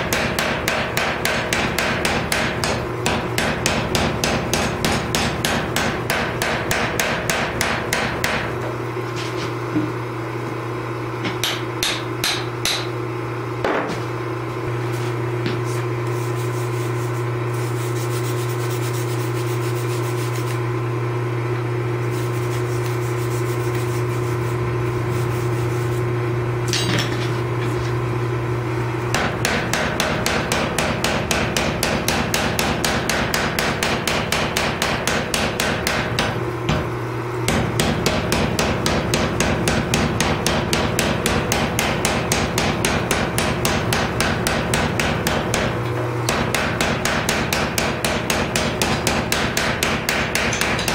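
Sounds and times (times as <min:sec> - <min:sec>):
power hammer humming: 0:24.5 - 0:50.9.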